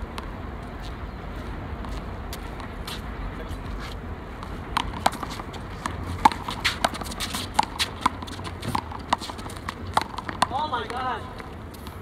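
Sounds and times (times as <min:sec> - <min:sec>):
low wind rumble: 0:00.0 - 0:12.0
quick footsteps: 0:00.7 - 0:12.0
handball smacking off concrete: 0:04.8 - 0:11.0.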